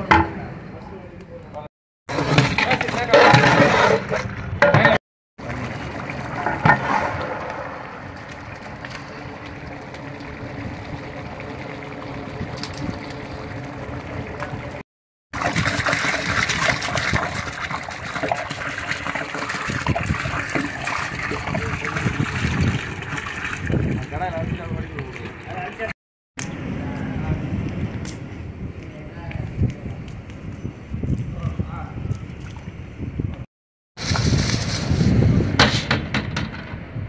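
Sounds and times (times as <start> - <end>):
water pouring into pot: 5.4 - 14.8, 15.4 - 25.9.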